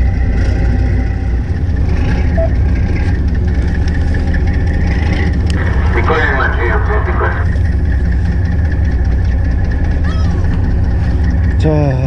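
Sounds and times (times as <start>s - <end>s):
boat engine running: 0.0s - 12.0s.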